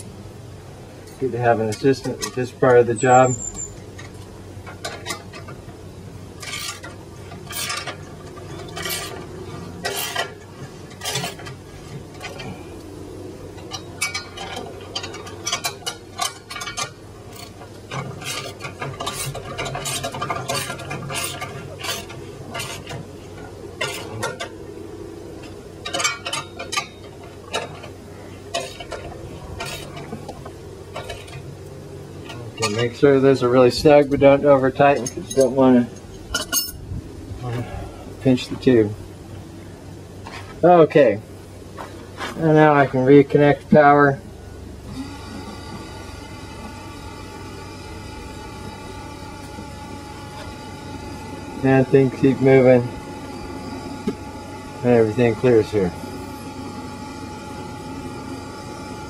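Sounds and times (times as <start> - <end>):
metal tools clinking on bolts: 1.0 - 5.6, 6.4 - 9.2, 9.8 - 12.6, 13.6 - 23.0, 25.4 - 30.2, 32.2 - 33.1, 33.9 - 36.8.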